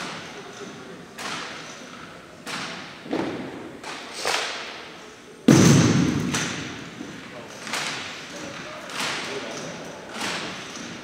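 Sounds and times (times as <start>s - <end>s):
sharp thuds on gym floor: 5.5s - 6.9s.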